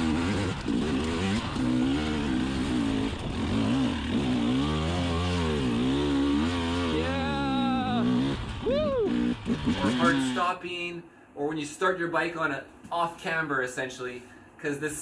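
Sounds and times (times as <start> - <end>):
motorcycle engine revving: 0.0 - 10.5.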